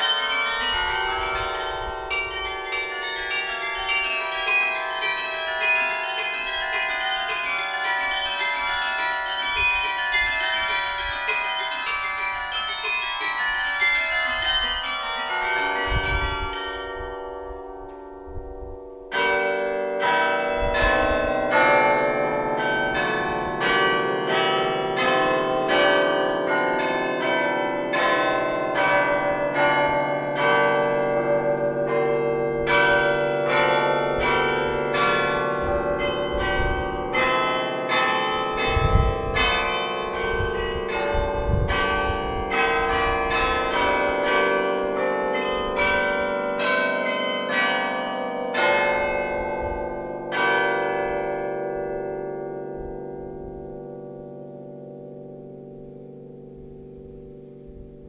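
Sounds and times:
carillon bells playing a tune: 0.0s - 52.2s.

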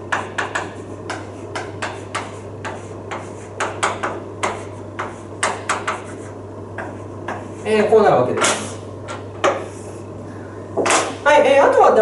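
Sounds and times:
steady low hum: 0.0s - 12.0s
chalk tapping on blackboard: 0.1s - 8.8s.

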